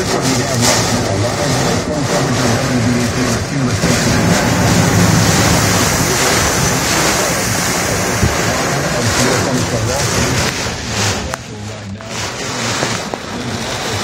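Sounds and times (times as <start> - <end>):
heavy rain beating on a car: 0.0 - 14.0
wind gusts: 2.3 - 11.0.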